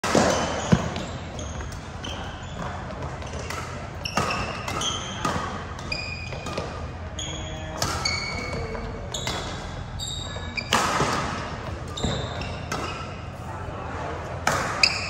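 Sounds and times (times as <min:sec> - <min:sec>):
shoes squeaking on court: 0:00.1 - 0:13.4, 0:14.8 - 0:15.0.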